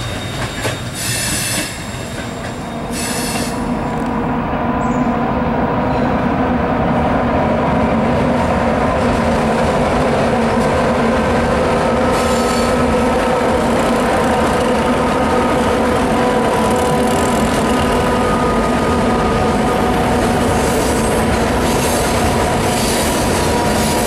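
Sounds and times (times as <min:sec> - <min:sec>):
diesel locomotives running: 0:00.0 - 0:24.0
high-pitched wheel squeal: 0:12.1 - 0:12.8.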